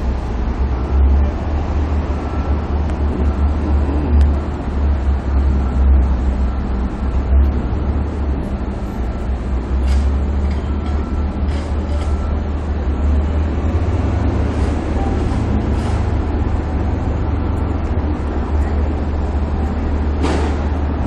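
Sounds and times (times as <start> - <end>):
vehicle engines rumbling: 0.0 - 21.0.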